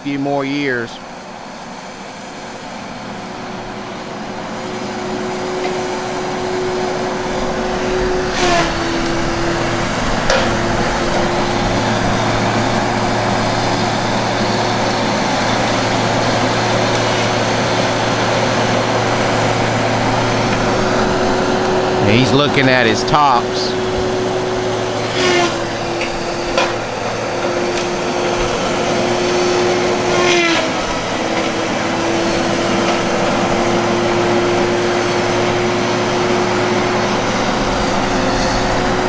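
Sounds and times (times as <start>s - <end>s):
heavy machine engine whine: 0.0s - 39.0s.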